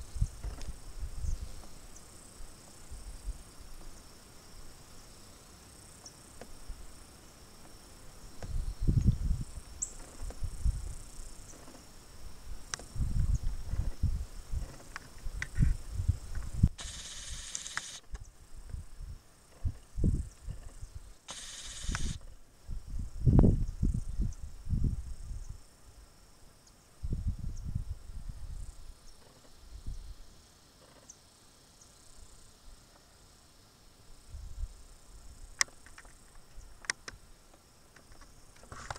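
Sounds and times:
insects chirring: 0.0s - 38.9s
wind buffeting microphone: 8.4s - 11.0s, 12.8s - 16.8s, 18.6s - 21.0s, 22.0s - 25.6s, 27.0s - 28.8s
high-pitched insect trilling: 12.8s - 18.6s, 19.6s - 24.5s.

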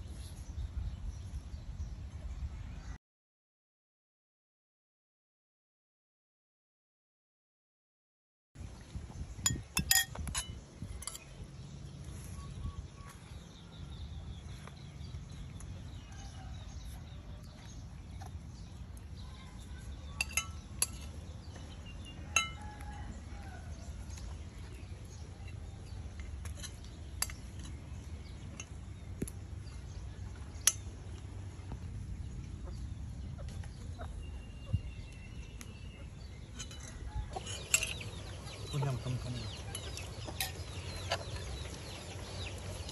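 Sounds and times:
spoons scraping ceramic plates: 9.5s - 11.3s, 36.5s - 41.5s.

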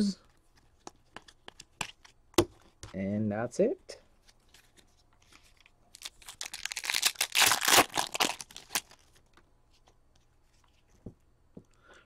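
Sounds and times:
foil wrapper tearing and crinkling: 5.9s - 9.2s.

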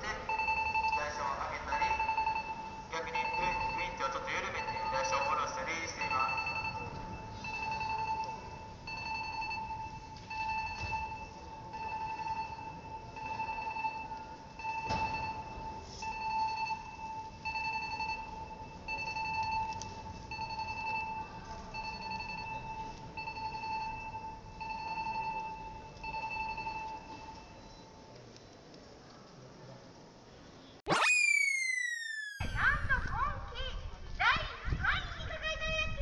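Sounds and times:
electronic warning beeps: 0.1s - 28.0s.

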